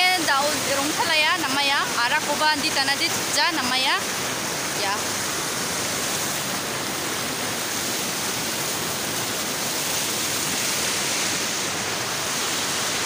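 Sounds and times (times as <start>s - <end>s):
waterfall pouring over rocks: 0.0s - 13.0s.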